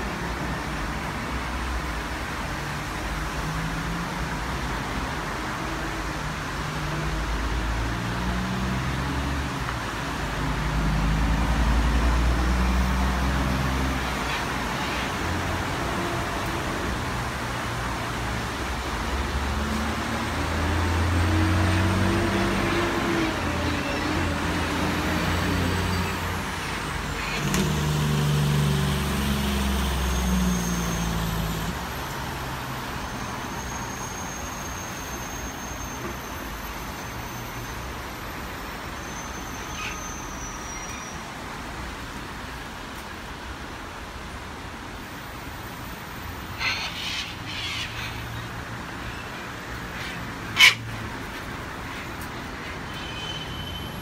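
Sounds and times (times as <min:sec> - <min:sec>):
road traffic: 0:00.0 - 0:54.0
cockatoos screeching: 0:39.1 - 0:41.2, 0:46.5 - 0:54.0.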